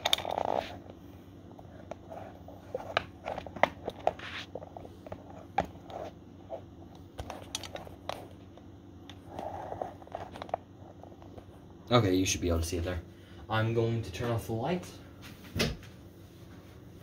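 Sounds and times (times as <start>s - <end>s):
faint low hum: 0.0s - 17.0s
camera handling clicks and rustles: 7.4s - 7.8s.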